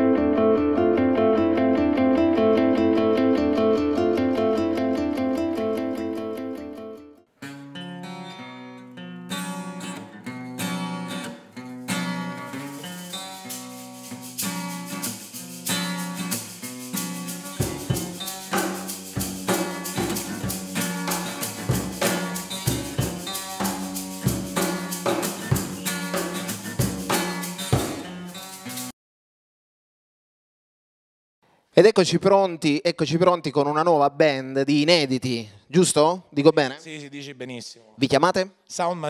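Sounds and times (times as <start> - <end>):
acoustic guitar: 0.0 - 28.9
cajon beats: 11.9 - 28.9
hand shaker: 12.5 - 28.9.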